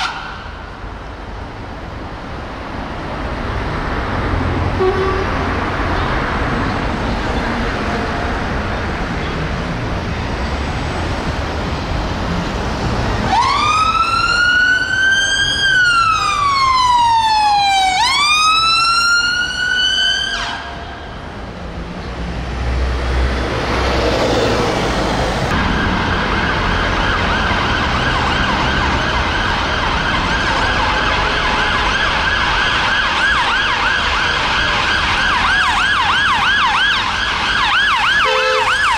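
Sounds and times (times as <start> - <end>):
fast warbling siren yelp: 0.0 - 0.6
siren wailing: 0.0 - 0.6, 13.2 - 21.0, 25.5 - 38.9
road traffic: 0.0 - 38.9.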